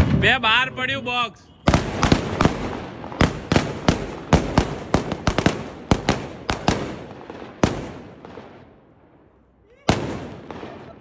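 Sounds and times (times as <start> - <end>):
firecrackers banging: 0.0 - 1.0, 1.6 - 9.3.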